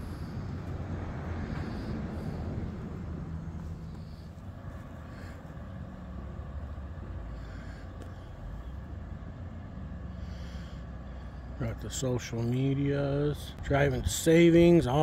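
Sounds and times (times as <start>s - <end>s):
engine hum: 0.0s - 15.0s
street traffic rumble: 0.0s - 15.0s.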